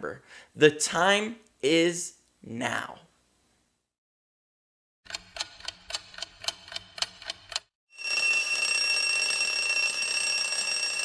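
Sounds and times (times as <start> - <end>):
alarm clock ticking: 5.1 - 11.0
alarm clock bell ringing: 7.9 - 11.0.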